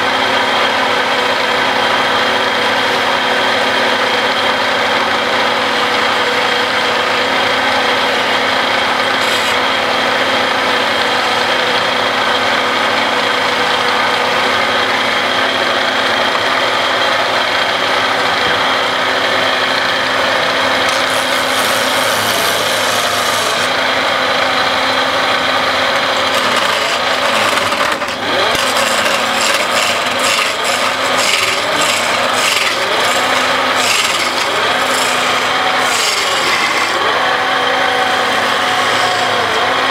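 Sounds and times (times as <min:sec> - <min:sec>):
wood lathe running: 0:00.0 - 0:39.9
chisel scraping wood: 0:09.0 - 0:09.7, 0:20.8 - 0:23.8, 0:26.0 - 0:37.1
rhythmic rubbing against wood: 0:26.0 - 0:37.0.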